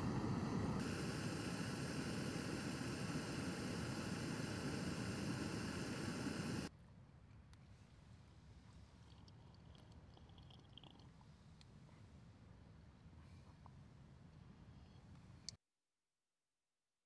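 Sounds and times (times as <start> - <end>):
camping stove burner hissing: 0.0 - 6.7.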